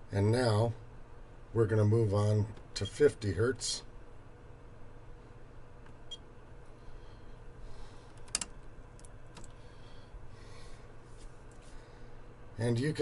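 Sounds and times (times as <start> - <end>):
low electrical hum: 0.0 - 13.0
knobs and switches clicking: 8.1 - 9.6.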